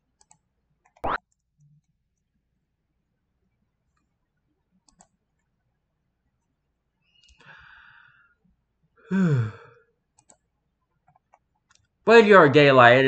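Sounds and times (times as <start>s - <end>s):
faint mouse click: 0.2s - 1.4s, 4.8s - 5.5s, 7.2s - 7.5s, 10.2s - 10.5s
person breathing in: 7.3s - 8.4s, 9.1s - 9.8s
person sighing: 9.0s - 9.8s.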